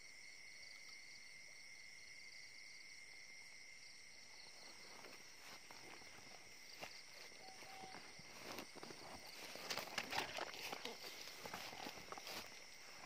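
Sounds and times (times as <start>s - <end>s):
crickets chirring: 0.0s - 13.0s
footsteps through dry grass: 4.6s - 13.0s.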